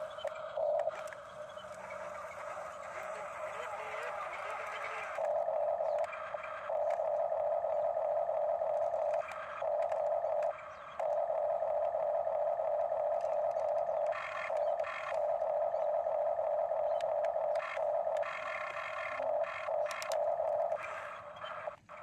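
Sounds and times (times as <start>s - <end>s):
toy excavator motors whining: 0.0s - 22.0s.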